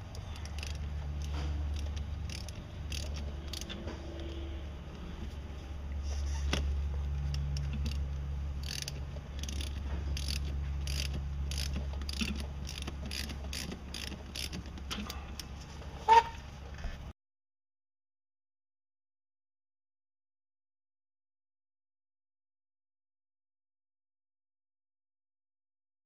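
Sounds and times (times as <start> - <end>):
hand ratchet clicking: 0.0 - 4.4, 7.2 - 15.5
low steady hum: 0.0 - 17.1.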